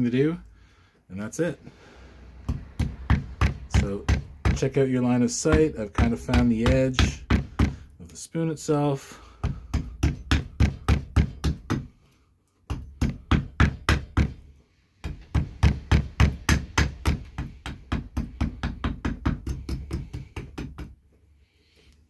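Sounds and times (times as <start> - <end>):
axe chopping wood: 5.5 - 7.8.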